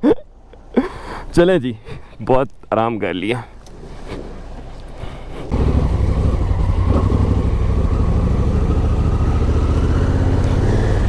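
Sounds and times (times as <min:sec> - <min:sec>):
motorcycle engine pulling away: 0:05.5 - 0:11.0.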